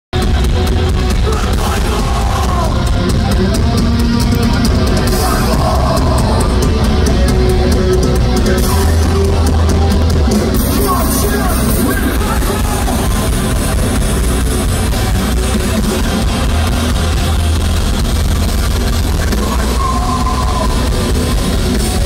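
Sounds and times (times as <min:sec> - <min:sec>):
bass guitar: 0:00.1 - 0:22.0
distorted guitars: 0:00.1 - 0:22.0
fast drums and cymbals: 0:00.2 - 0:22.0
person singing: 0:01.2 - 0:03.0, 0:04.4 - 0:13.6.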